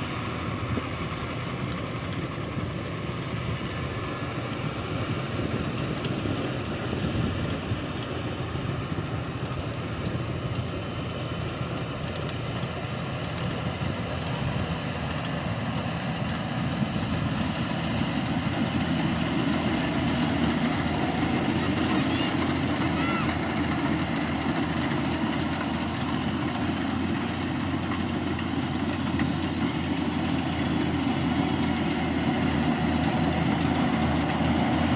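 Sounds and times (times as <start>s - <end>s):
combine harvester running: 0.0s - 34.9s.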